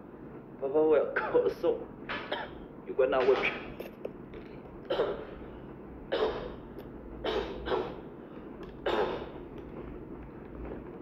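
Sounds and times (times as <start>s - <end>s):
man coughing: 4.9s - 5.4s, 6.1s - 6.6s, 8.8s - 9.3s.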